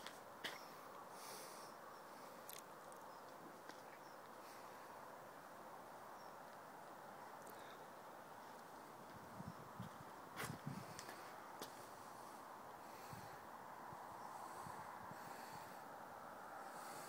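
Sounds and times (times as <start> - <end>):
faint outdoor background hiss: 0.0 - 17.0.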